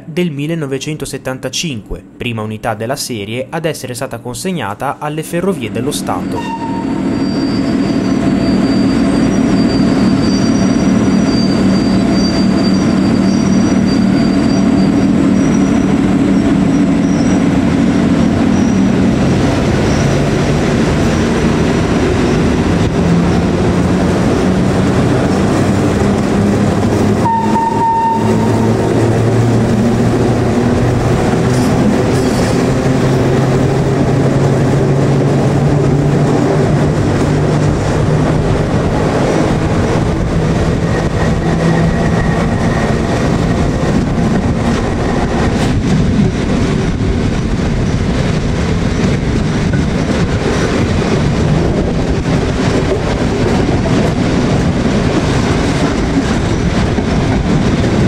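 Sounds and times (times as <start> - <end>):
train running noise: 4.6 - 58.0
brief high tone: 5.7 - 7.7, 27.2 - 28.8
electric locomotive motor hum: 5.9 - 58.0.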